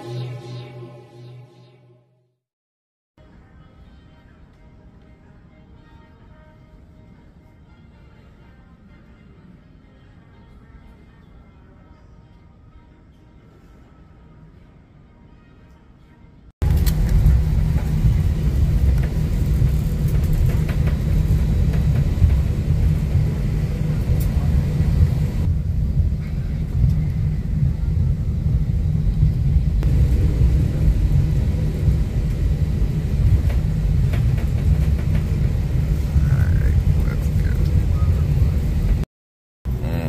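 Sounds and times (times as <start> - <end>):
airliner cabin rumble: 16.6 - 39.1.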